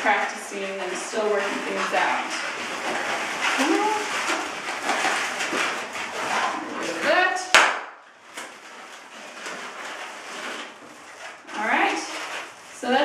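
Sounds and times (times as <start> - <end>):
balloons squeaking and rubbing: 0.0 - 13.0
balloon snapping: 7.5 - 8.5.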